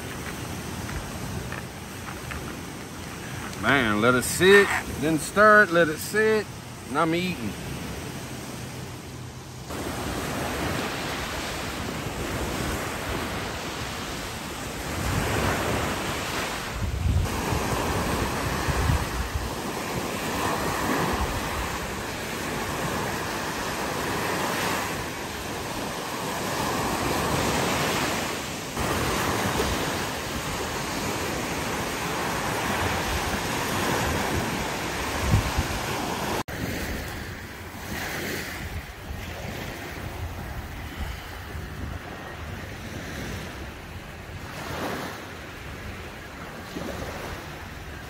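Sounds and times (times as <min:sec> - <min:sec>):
waves breaking on sandy shore: 0:00.0 - 0:48.0
wind buffeting microphone: 0:14.8 - 0:24.3, 0:28.8 - 0:37.1.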